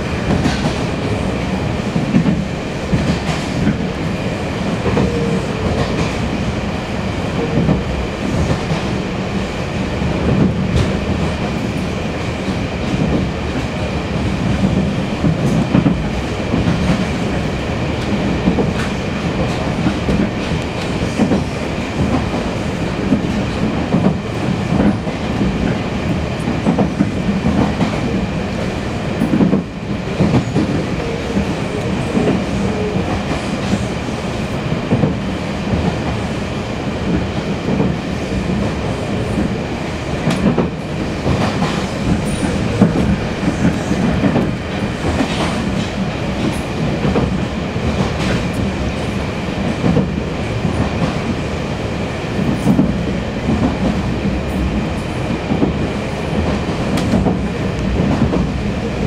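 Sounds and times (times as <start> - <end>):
train wheels rumbling on rails: 0.0 - 59.0
clickety-clack knocks: 0.2 - 0.9, 1.9 - 3.8, 4.8 - 6.3, 7.4 - 7.8, 8.4 - 9.0, 10.2 - 11.5, 12.4 - 13.7, 14.4 - 17.4, 18.0 - 33.9, 34.8 - 36.2, 37.1 - 39.5, 40.2 - 51.4, 52.4 - 54.6, 55.5 - 55.8, 56.4 - 58.6.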